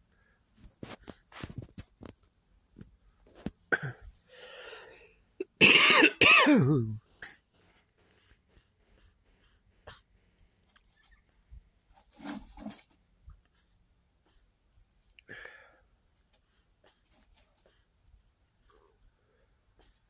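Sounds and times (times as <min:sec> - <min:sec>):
soft clicks and rustles: 0:00.5 - 0:03.7
person coughing: 0:03.7 - 0:04.1, 0:05.4 - 0:07.4.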